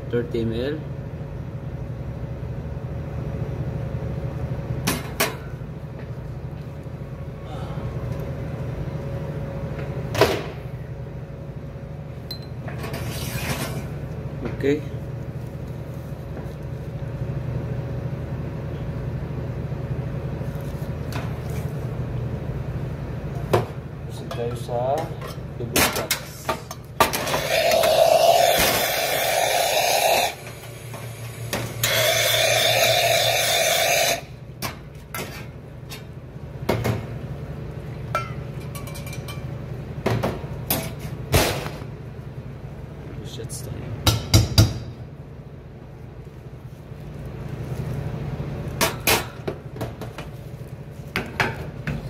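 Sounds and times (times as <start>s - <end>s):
low machine hum: 0.0s - 52.0s
espresso machine humming: 27.2s - 34.4s.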